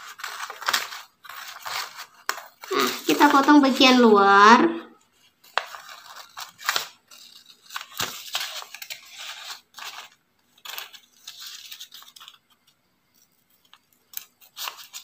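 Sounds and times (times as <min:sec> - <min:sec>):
paper rustling: 0:00.0 - 0:04.3, 0:05.0 - 0:15.0
scissors snipping paper: 0:05.5 - 0:15.0.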